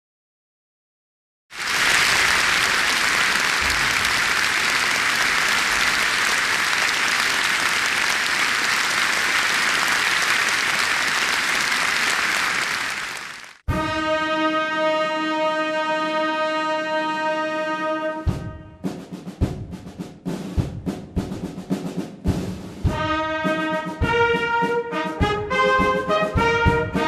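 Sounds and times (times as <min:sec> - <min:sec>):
audience applauding: 0:01.5 - 0:13.7.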